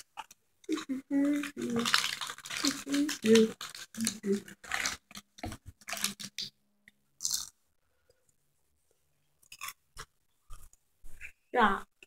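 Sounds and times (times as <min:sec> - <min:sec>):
popcorn being chewed: 0:00.0 - 0:06.6, 0:07.2 - 0:07.6, 0:09.4 - 0:10.9.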